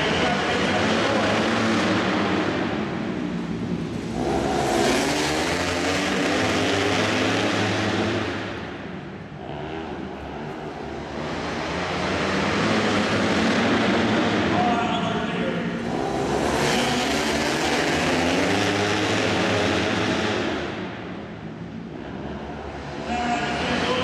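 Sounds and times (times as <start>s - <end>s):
racing motorcycles passing: 0.0s - 24.0s.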